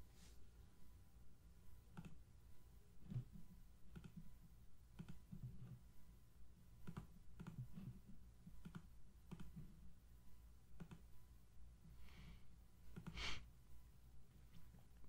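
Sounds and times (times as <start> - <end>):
low steady hum: 0.0 - 15.0
computer mouse clicks: 1.9 - 2.2, 3.0 - 4.3, 4.9 - 5.8, 6.8 - 9.7, 10.8 - 11.1, 12.9 - 13.2.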